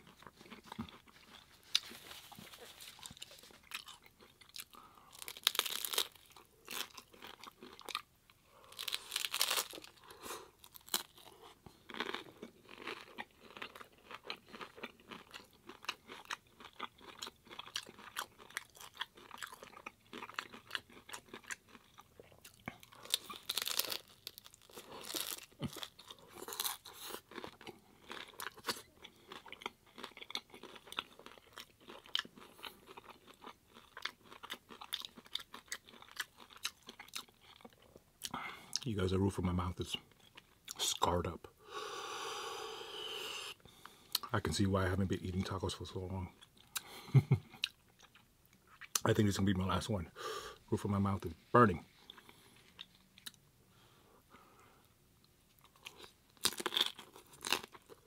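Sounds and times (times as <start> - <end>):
chewing: 0.0 - 38.9
crunching taco shells: 0.0 - 38.9, 55.2 - 58.0.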